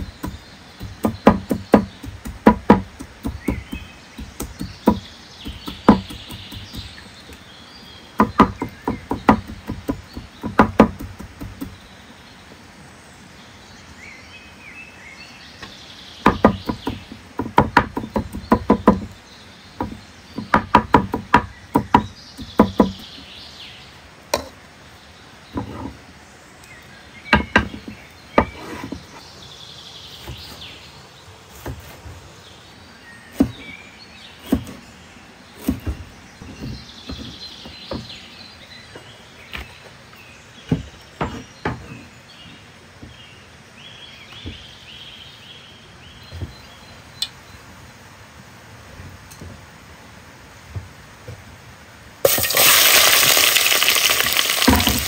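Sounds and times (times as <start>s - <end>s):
knife chopping on wooden board: 0.0s - 6.9s, 8.2s - 11.8s.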